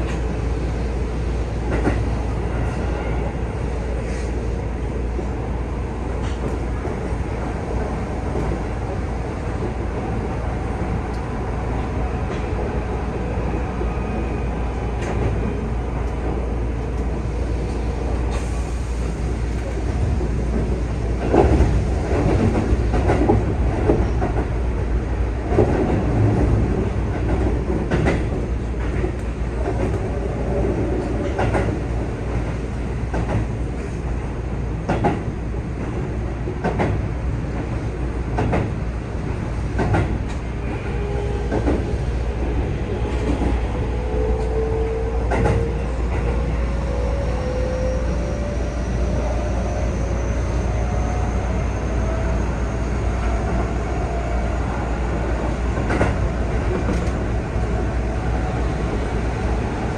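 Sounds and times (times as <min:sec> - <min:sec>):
electric train rumble: 0:00.0 - 0:59.9
rail joint clacks: 0:01.6 - 0:03.3, 0:14.9 - 0:24.8, 0:25.4 - 0:34.0, 0:34.8 - 0:47.6, 0:55.1 - 0:59.9.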